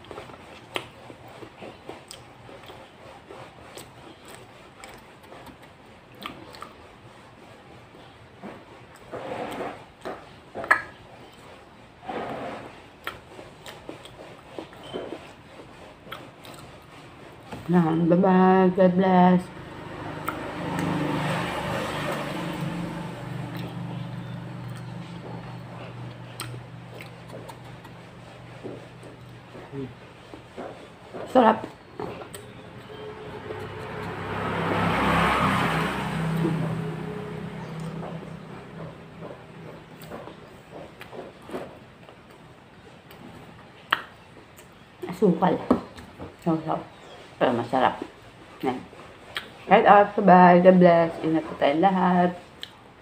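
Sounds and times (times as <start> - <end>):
person chewing food: 0.0 - 7.2, 8.7 - 11.7, 12.7 - 17.7, 19.7 - 44.9, 49.2 - 49.6, 52.5 - 52.9
vehicle engine humming: 17.4 - 43.8
mouth clicks: 24.6 - 28.0.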